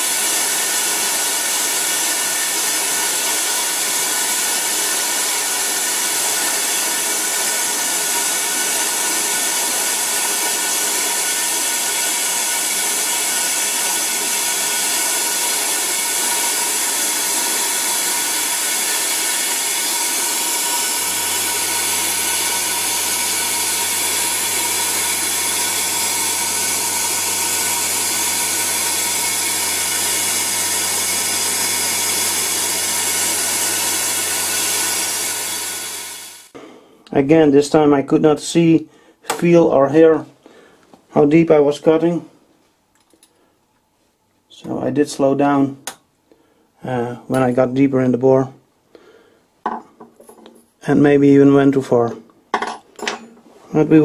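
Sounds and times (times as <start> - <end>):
lathe cutting metal hissing: 0.0 - 36.6.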